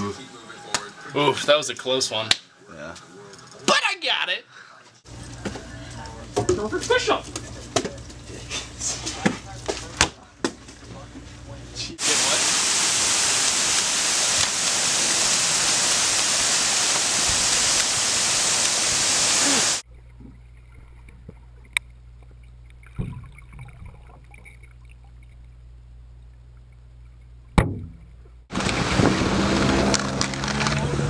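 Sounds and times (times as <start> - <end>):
creek water pouring over ledge: 12.0 - 19.8
thump: 27.6 - 28.1.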